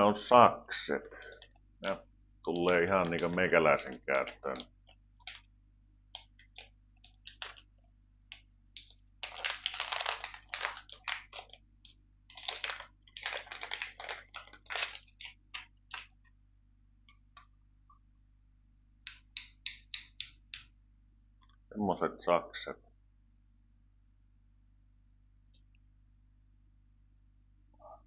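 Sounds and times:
packaging crinkling: 4.5 - 5.5, 6.1 - 16.3.

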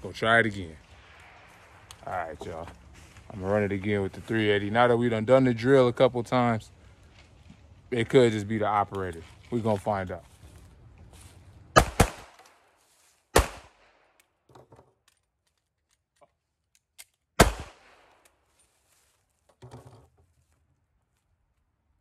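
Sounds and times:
pistol shots: 11.8 - 12.5, 13.3 - 13.9, 17.4 - 18.2
pistol reload clicks and rattles: 14.2 - 17.3.

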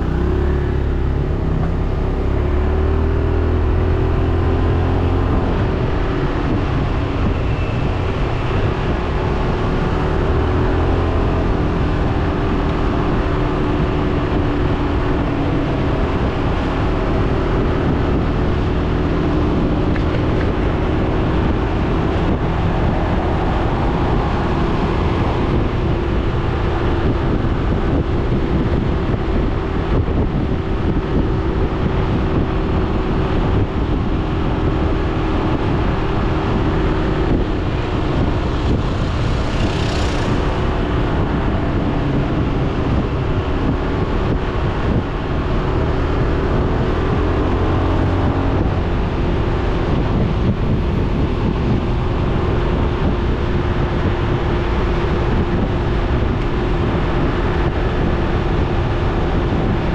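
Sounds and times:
scooter engine humming: 0.0 - 59.9
wind noise on microphone: 0.0 - 59.9
tyre noise on wet road: 5.5 - 59.9.

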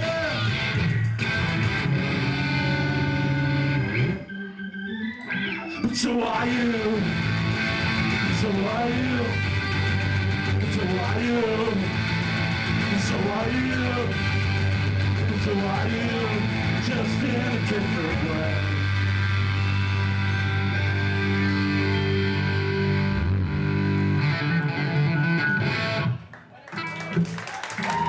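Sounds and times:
ska-punk band playing loud: 6.6 - 19.6.

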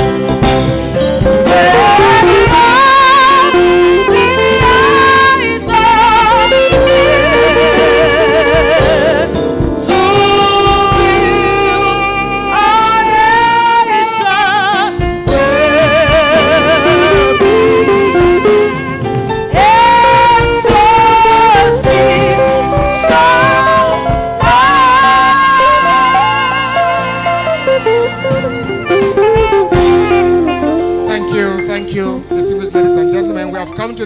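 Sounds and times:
instrumental accompaniment: 0.0 - 34.0
audience singing together: 1.4 - 3.1.

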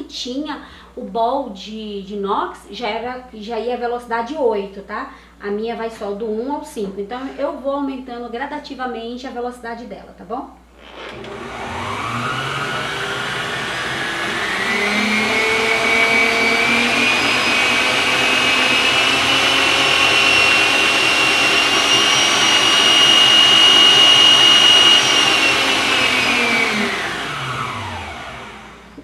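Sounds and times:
stand mixer motor whining: 10.8 - 29.0.

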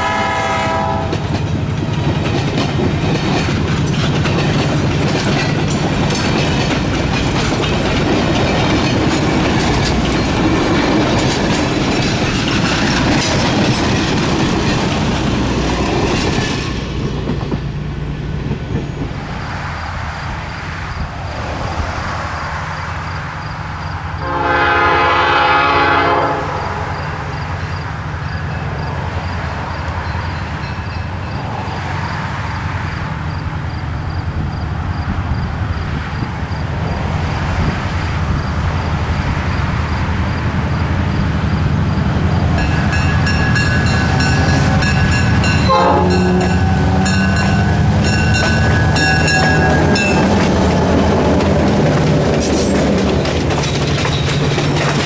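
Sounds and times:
locomotive horn blast: 0.0 - 1.2, 24.2 - 27.3, 43.8 - 50.4
locomotive engine rumble: 0.0 - 55.0
train coaches rolling past: 0.0 - 55.0
locomotive warning signals: 42.5 - 50.6.

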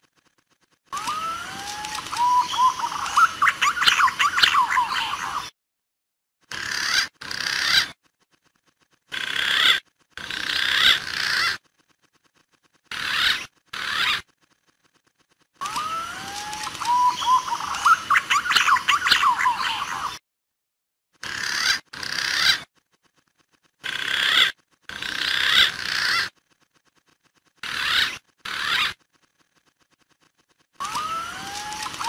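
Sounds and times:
pigeon calls: 0.9 - 5.5, 6.5 - 8.0, 9.1 - 11.6, 12.9 - 14.4, 15.6 - 20.2, 21.2 - 22.7, 23.8 - 26.4, 27.6 - 29.0, 30.8 - 32.0.

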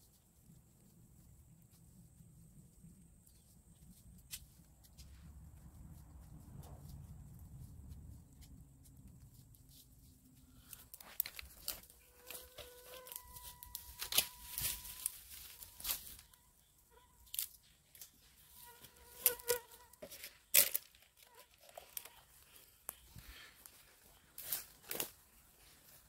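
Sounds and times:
dry leaves and twigs crunching: 6.8 - 26.0.

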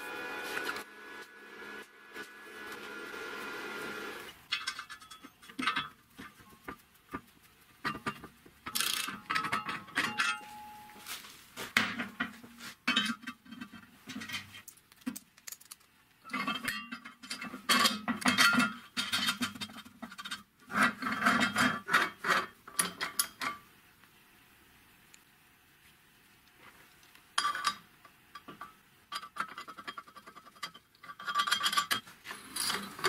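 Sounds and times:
metal parts clinking: 4.3 - 6.0, 8.7 - 10.8, 12.9 - 20.4, 29.1 - 33.0
ratchet wrench clicks: 8.7 - 9.2.

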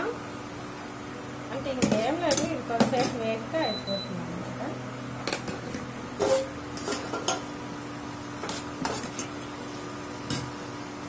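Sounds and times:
ladle scraping frying pan: 5.3 - 7.4, 8.4 - 9.4.

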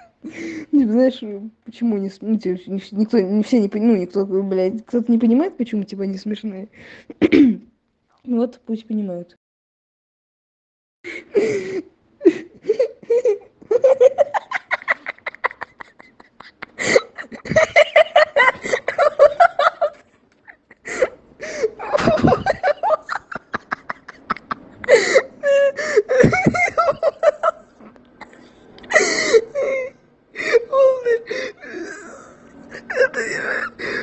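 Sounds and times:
person laughing hard: 12.2 - 27.7.

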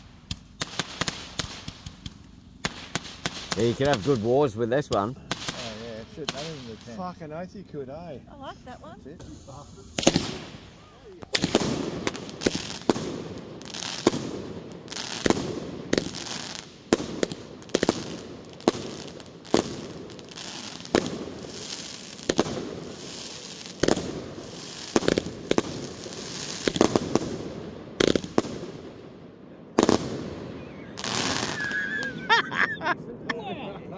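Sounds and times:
fireworks bangs: 0.0 - 7.4, 8.5 - 33.3
fireworks bursting in the air: 0.0 - 7.5, 8.2 - 33.9
fireworks crackling: 0.0 - 33.9.

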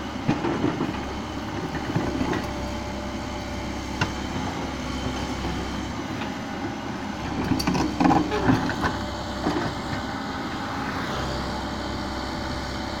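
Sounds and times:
excavator diesel engine running: 0.0 - 13.0
excavator arm knocks and clanks: 0.1 - 2.6, 7.3 - 10.1.

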